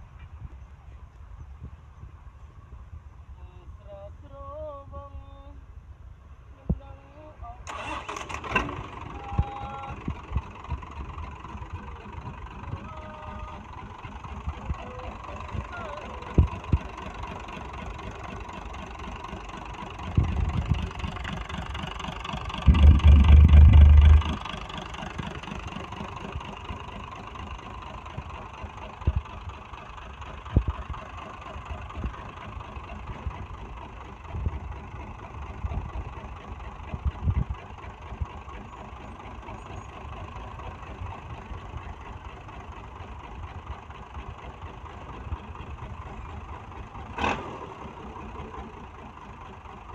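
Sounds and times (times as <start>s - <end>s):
truck diesel engine idling: 7.6s - 49.9s
loud low rumble: 22.4s - 25.0s.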